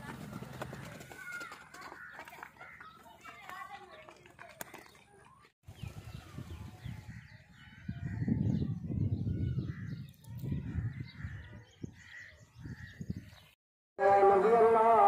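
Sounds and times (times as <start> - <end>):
crows cawing: 0.7 - 3.0
wind buffeting microphone: 5.7 - 13.6.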